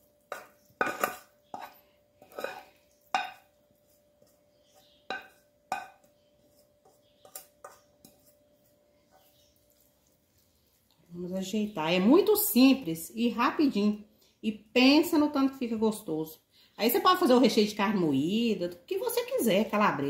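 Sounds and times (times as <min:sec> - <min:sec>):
spoon clinking on metal bowl: 0:00.2 - 0:03.6, 0:04.7 - 0:06.2.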